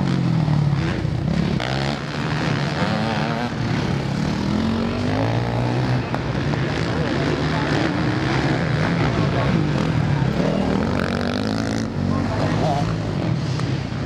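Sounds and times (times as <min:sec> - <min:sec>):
motorbike engines revving: 0:00.0 - 0:14.0.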